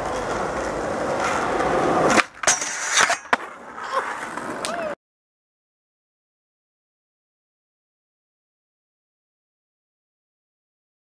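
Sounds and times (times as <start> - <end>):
skateboard clacks: 0.0 - 5.0
skateboard grinding on rail: 0.0 - 5.0
skateboard pop: 0.0 - 5.0
skateboard wheels rolling on pavement: 0.0 - 5.0.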